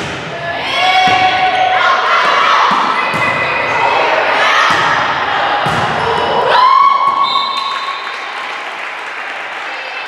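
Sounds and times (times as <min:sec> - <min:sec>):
volleyball thuds: 0:04.6 - 0:06.1
high-pitched crowd cheer: 0:06.0 - 0:10.0.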